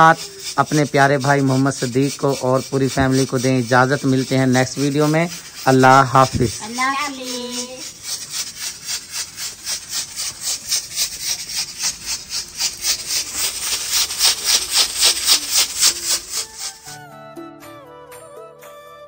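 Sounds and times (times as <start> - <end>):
pressure cooker puffs of steam: 7.9 - 17.0.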